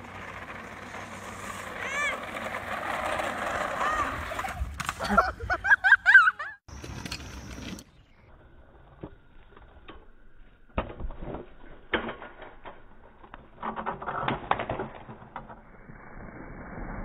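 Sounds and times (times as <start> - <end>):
kick scooter rattling over asphalt: 0.0 - 5.0
scooter clattering in a fall: 0.0 - 5.3.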